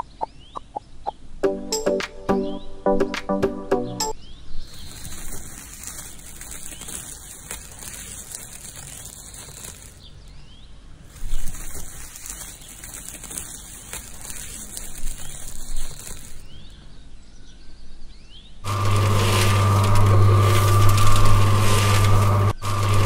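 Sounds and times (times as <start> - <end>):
rustling of toy handling: 4.6 - 10.3, 11.0 - 16.7, 18.7 - 23.0.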